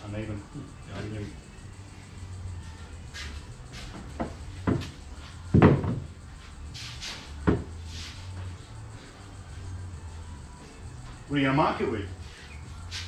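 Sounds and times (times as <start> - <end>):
dull knocks and thumps: 4.0 - 6.1, 7.4 - 7.7.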